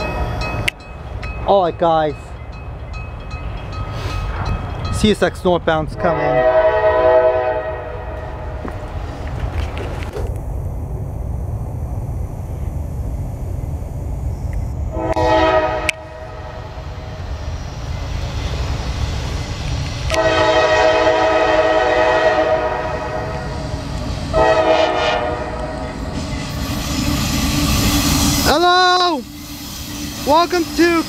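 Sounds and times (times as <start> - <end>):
train rumbling: 0.0 - 31.0
diesel locomotive horn blasts: 6.0 - 8.6, 14.9 - 16.8, 20.1 - 23.6, 24.3 - 26.0.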